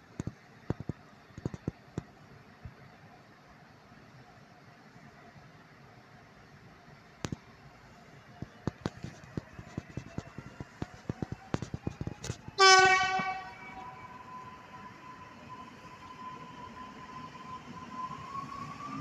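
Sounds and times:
train horn blast: 12.6s - 13.8s.

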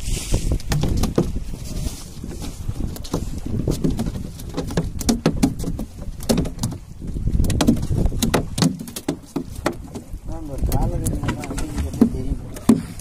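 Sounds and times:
low rumble on boat: 0.0s - 13.0s.

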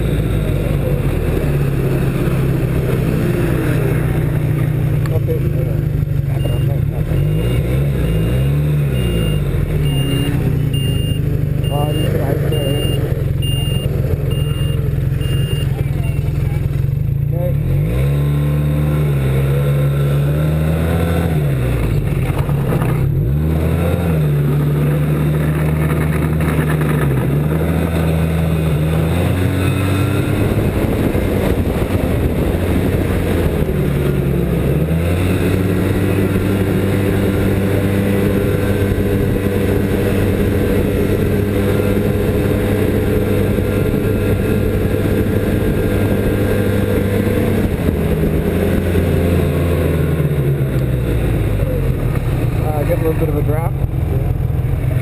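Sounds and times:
snowmobile engine running: 0.0s - 17.7s, 18.8s - 55.0s.

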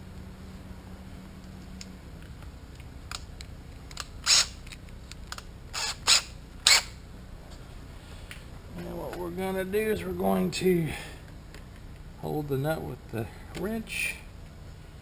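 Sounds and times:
sharp mechanical snaps: 1.8s - 7.0s.

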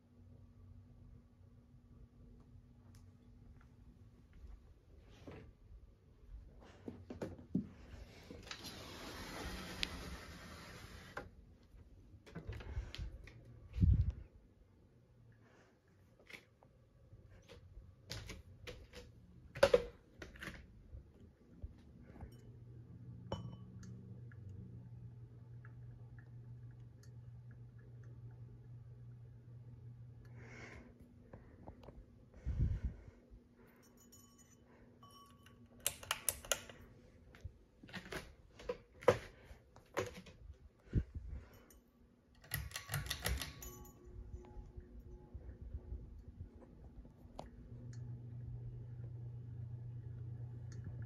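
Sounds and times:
ceiling fan motor hum: 0.0s - 15.7s
ceiling fan humming: 0.0s - 51.0s.

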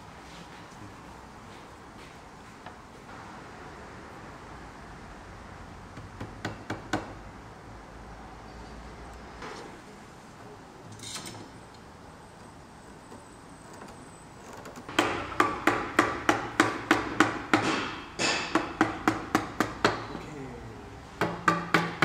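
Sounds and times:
faint workshop hum: 0.0s - 22.0s
mallet knocking on wood: 14.9s - 20.1s, 21.2s - 22.0s.

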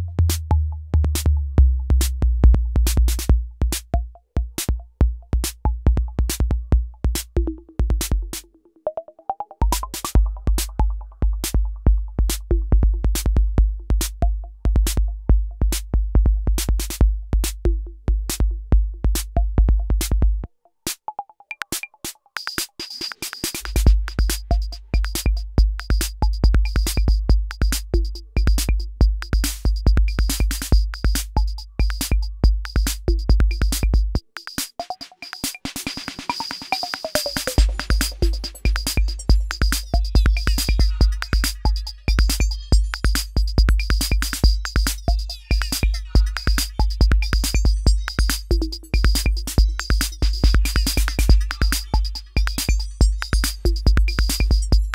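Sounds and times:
drum machine bass drum: 0.0s - 8.5s, 9.6s - 54.9s
fast hi-hat ticks: 9.7s - 10.8s, 21.6s - 54.9s.

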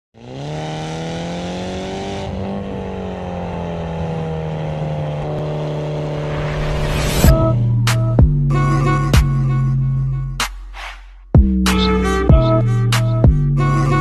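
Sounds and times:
car engine and exhaust driving: 0.2s - 10.5s.

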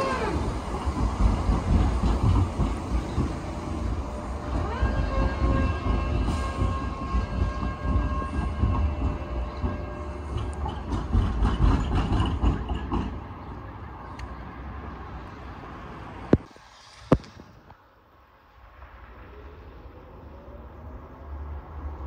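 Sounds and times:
tram rumbling past: 0.0s - 16.5s.

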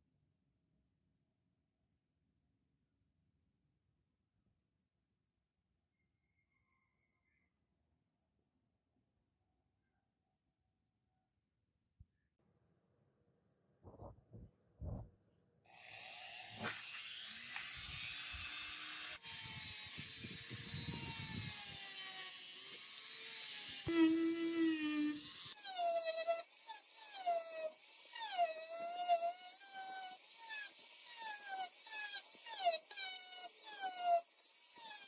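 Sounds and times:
rotary tool buffing glass: 15.7s - 35.0s.

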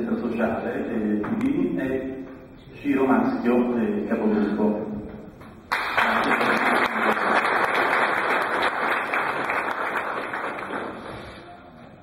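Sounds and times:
audience applauding: 5.7s - 11.6s.

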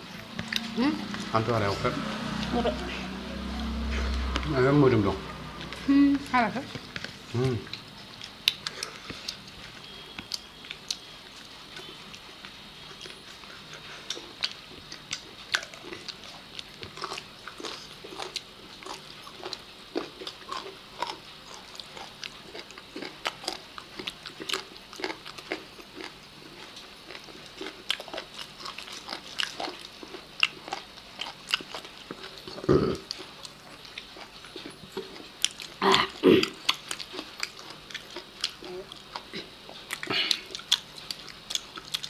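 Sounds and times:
lip smacks and chewing: 7.7s - 9.6s.

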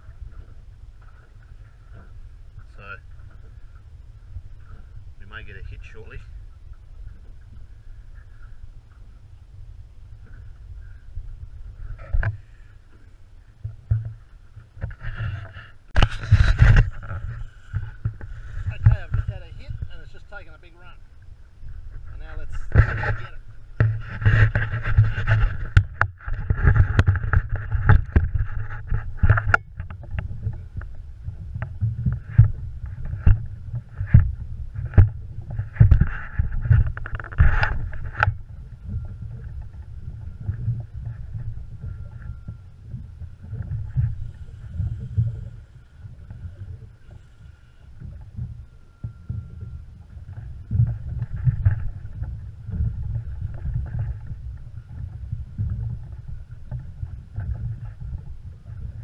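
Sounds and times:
water moving around a boat: 0.0s - 59.0s
wind buffeting the microphone: 13.8s - 47.3s, 48.0s - 59.0s.

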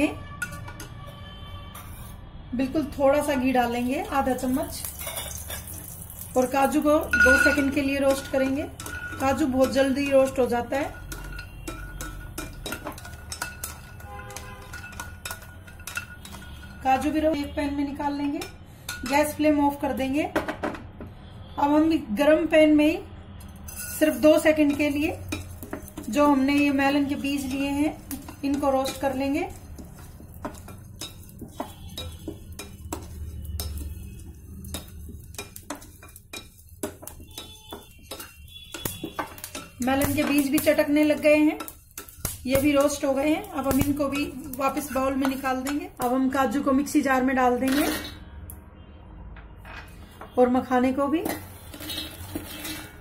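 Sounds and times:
seeds crackling while roasting: 3.2s - 17.2s, 23.7s - 47.0s, 51.2s - 53.0s
spatula knocking and scraping pan: 6.9s - 17.6s, 23.7s - 46.0s.

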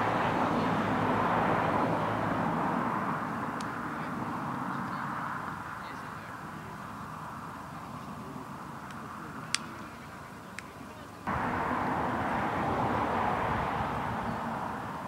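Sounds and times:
steady rushing noise: 11.3s - 15.0s.

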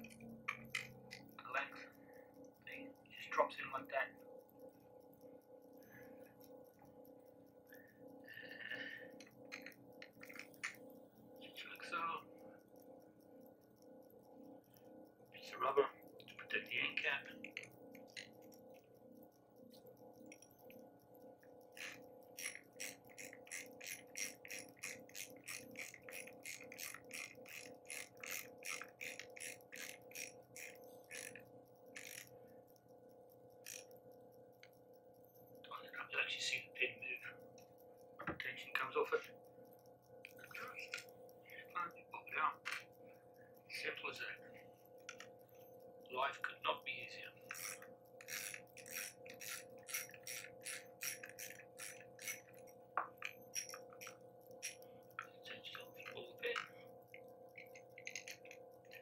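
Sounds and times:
heat pump hum: 0.0s - 4.1s
heat pump humming: 0.0s - 59.0s
threaded rod scraping: 9.2s - 10.8s, 21.8s - 32.4s, 33.6s - 33.9s, 47.4s - 56.8s, 57.6s - 59.0s.

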